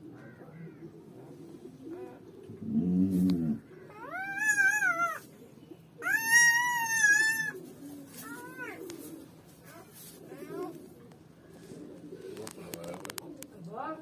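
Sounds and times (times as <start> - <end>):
puppy low moan: 2.0 - 5.2
puppy crying: 3.9 - 5.2, 6.0 - 7.6.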